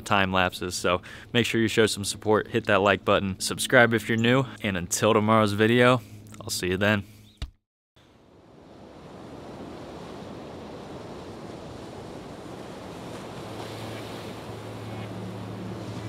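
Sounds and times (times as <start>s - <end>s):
low steady hum: 0.0s - 7.3s, 11.6s - 16.0s.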